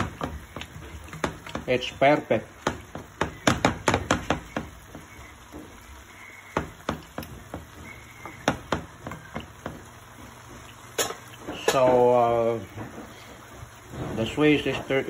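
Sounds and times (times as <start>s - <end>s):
utensil knocking against frying pan: 0.0s - 1.9s, 2.5s - 5.8s, 6.5s - 10.0s.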